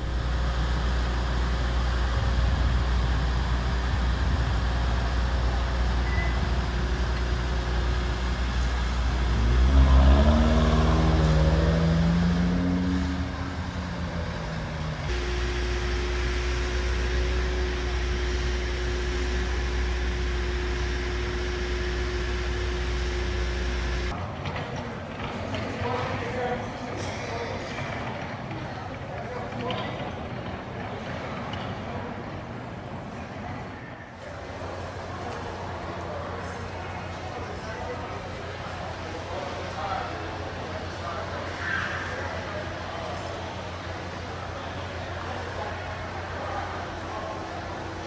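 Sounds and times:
steady hum: 0.0 - 24.2
vehicle engine accelerating: 0.0 - 24.2
road traffic rumble: 0.0 - 26.8, 34.2 - 48.0.

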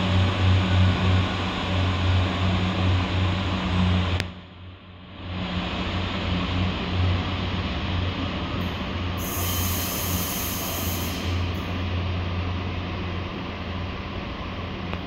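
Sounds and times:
diesel engine drone: 0.0 - 15.0
brief high hiss: 9.2 - 11.7.

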